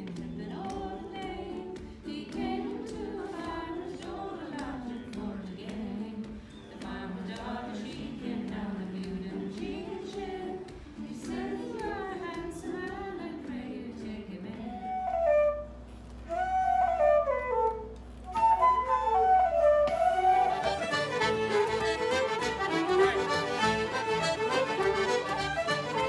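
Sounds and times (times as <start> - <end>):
group singing in unison: 0.0 - 15.0
wooden flute playing a quick tune: 14.6 - 26.0
strummed string instrument: 20.4 - 26.0.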